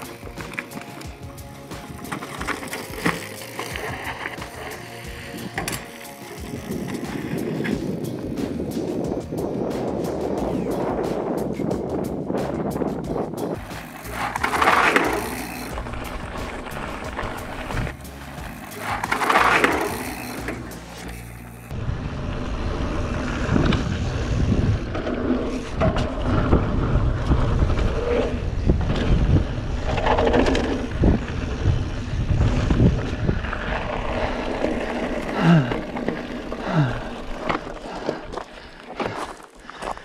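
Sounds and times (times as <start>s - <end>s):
tyres crunching on gravel: 0.0s - 9.2s, 13.5s - 21.7s, 32.7s - 40.0s
bike rattling and knocking: 0.0s - 21.8s
wind rumble on microphone: 6.4s - 13.7s, 21.7s - 38.0s.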